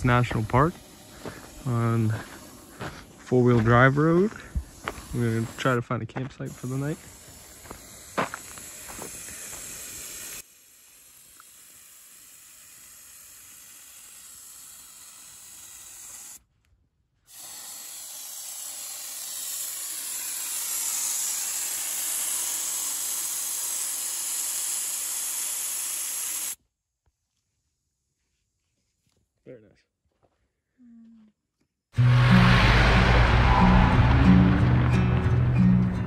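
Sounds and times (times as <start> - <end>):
air hissing out of tyre: 0.0 - 5.8, 6.5 - 16.4, 17.3 - 26.6.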